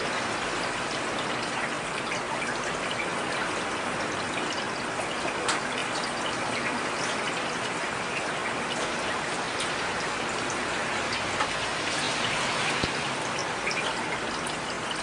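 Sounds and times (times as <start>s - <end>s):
heavy rain hiss: 9.8s - 13.6s.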